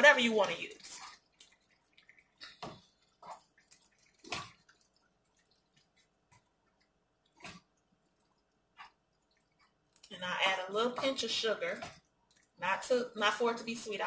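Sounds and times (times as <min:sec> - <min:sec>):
spoon stirring thick sauce: 0:00.0 - 0:13.0.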